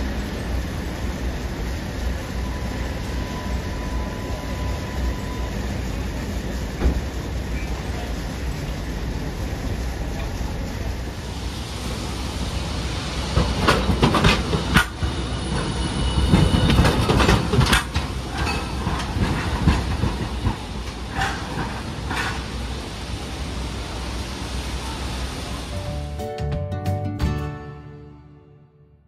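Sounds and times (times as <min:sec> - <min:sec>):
wheel squealing on rail: 0:00.0 - 0:23.0
tram wheels clacking over rail joints: 0:00.0 - 0:25.6.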